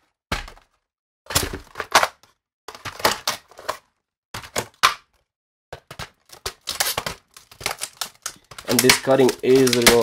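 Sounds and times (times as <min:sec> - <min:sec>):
scissors cutting hard plastic: 0:06.4 - 0:10.0.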